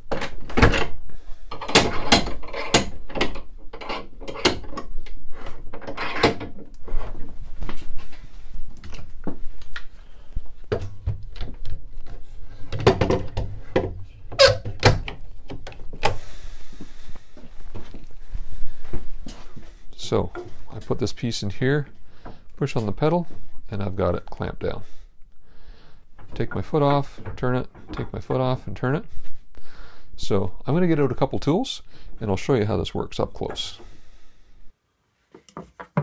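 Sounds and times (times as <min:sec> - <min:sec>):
wood and metal knocks and clicks: 0:00.0 - 0:07.2, 0:10.7 - 0:16.2, 0:35.4 - 0:36.0.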